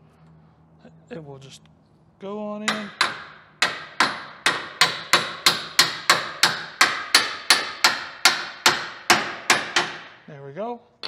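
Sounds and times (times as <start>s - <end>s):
hammer striking bolt: 2.7s - 10.2s.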